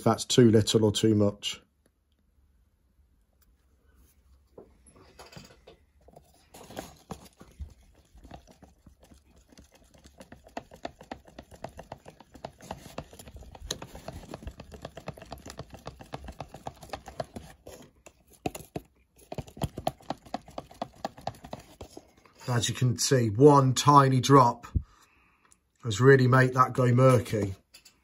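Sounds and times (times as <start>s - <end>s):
stick scraping plastic cup: 6.0s - 22.6s.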